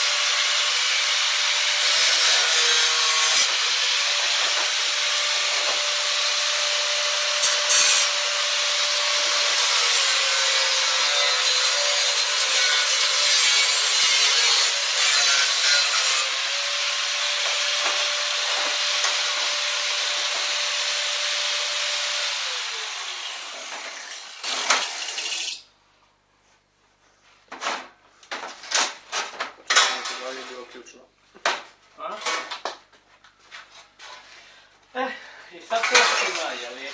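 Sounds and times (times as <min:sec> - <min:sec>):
angle grinder cutting metal: 0:00.0 - 0:25.6
sheet metal clanking: 0:27.6 - 0:30.6.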